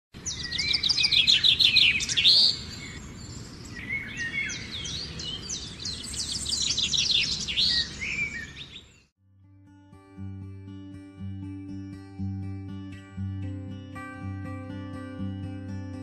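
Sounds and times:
birds chirping and twittering: 0:00.2 - 0:09.1.

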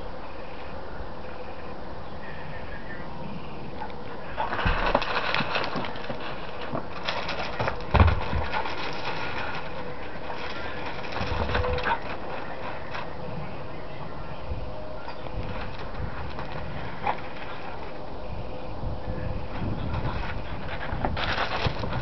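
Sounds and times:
heavy thump: 0:07.6 - 0:08.6.

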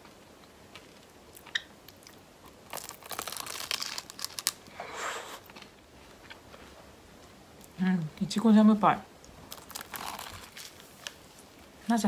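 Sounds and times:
pastry crust crunching: 0:00.0 - 0:04.8, 0:09.2 - 0:11.5.

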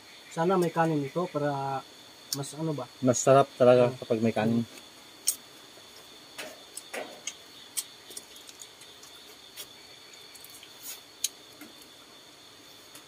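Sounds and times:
high-pitched insect drone: 0:00.0 - 0:13.0
people eating clicks and smacks: 0:04.7 - 0:12.0.

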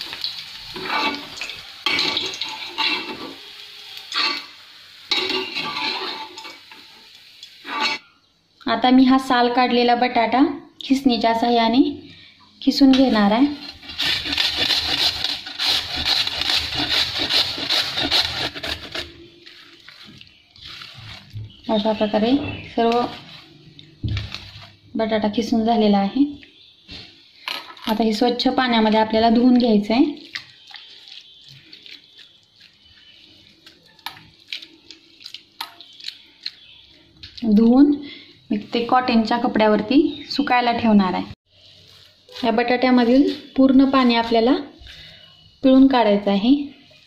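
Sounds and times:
potato grated on metal grater: 0:13.7 - 0:19.1
water sloshing and dripping: 0:19.4 - 0:22.2, 0:29.4 - 0:37.6
sharp water splashes: 0:30.1 - 0:33.2.

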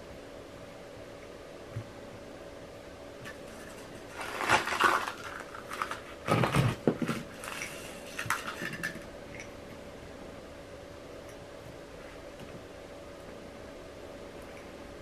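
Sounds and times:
potting mix rustling and scraping: 0:03.2 - 0:09.1.

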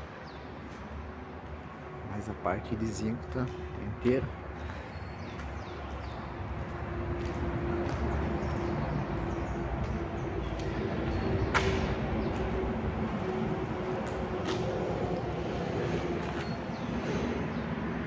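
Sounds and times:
droning tone of passing vehicles: 0:00.0 - 0:18.0
highway traffic rumble: 0:00.0 - 0:18.0.

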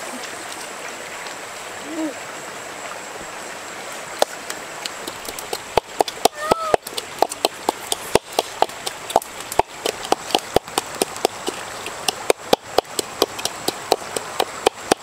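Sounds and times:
pestle pounding in a bowl: 0:05.2 - 0:15.0.

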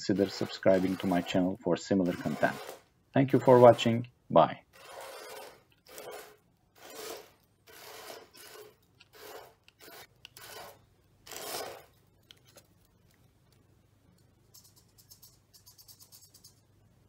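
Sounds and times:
toy car motors whirring: 0:00.0 - 0:02.8, 0:04.8 - 0:11.9.

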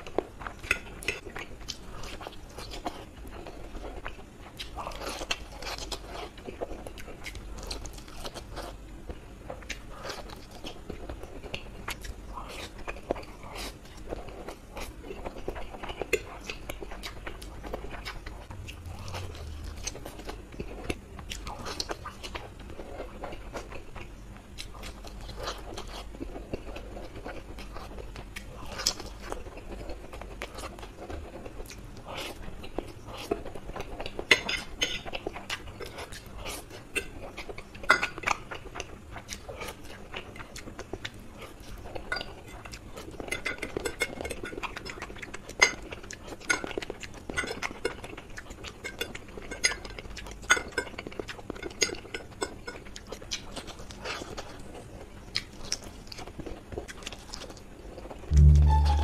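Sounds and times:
man chewing food: 0:00.0 - 0:59.0.

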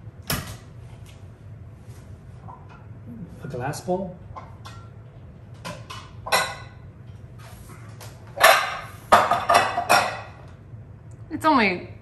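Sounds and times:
dishes clattering: 0:05.6 - 0:06.8, 0:08.3 - 0:10.5
dishes clinking: 0:05.6 - 0:06.9, 0:08.4 - 0:10.5.

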